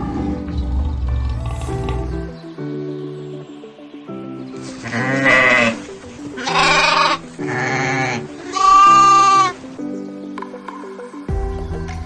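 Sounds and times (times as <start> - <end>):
light background music: 0.0 - 12.0
goats bleating: 4.8 - 9.6.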